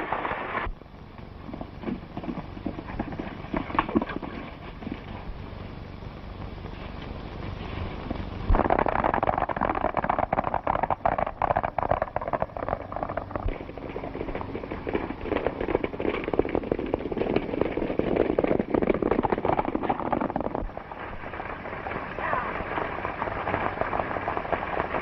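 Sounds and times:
horses galloping hoofbeats: 0:01.1 - 0:25.0.

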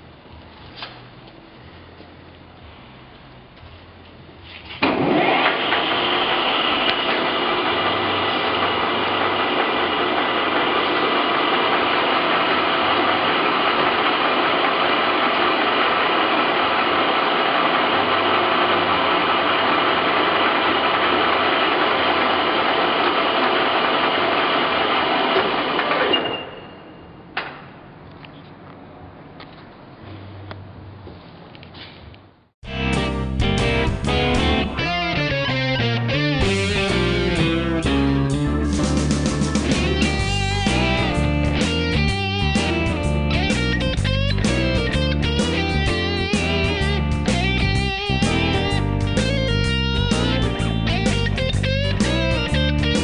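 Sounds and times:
lathe running with whine: 0:04.9 - 0:26.1.

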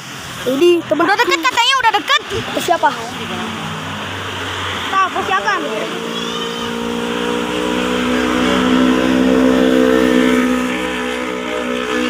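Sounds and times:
vehicle engine passing by: 0:00.2 - 0:12.0.

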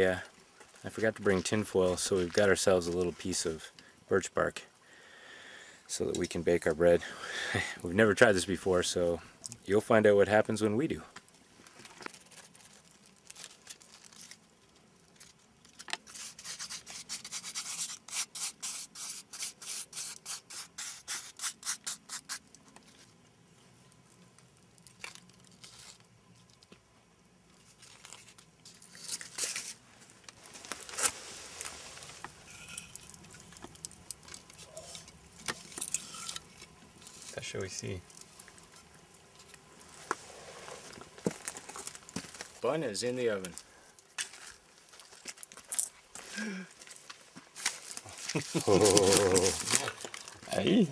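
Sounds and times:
scattered rustling: 0:47.6 - 0:50.8.

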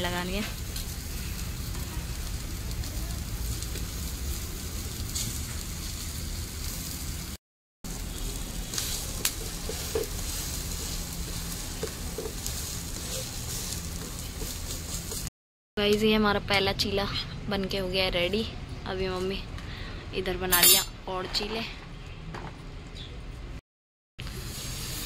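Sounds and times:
batter sizzling in a pan: 0:00.0 - 0:15.3, 0:24.2 - 0:25.0.

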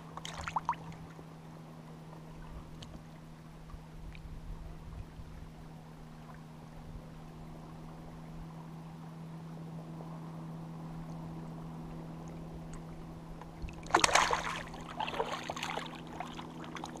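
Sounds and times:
steady low hum: 0:00.0 - 0:17.0
fish splashing into water: 0:13.8 - 0:17.0.

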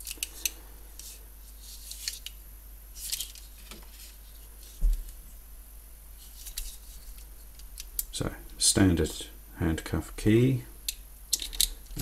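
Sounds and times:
handcuffs clicking: 0:10.9 - 0:12.0.

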